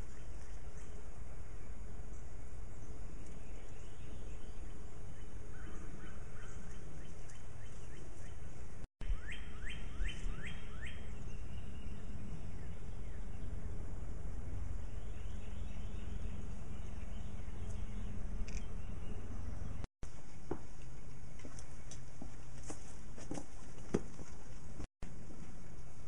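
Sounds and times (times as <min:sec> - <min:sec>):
bird calling downward notes: 0:09.0 - 0:13.8.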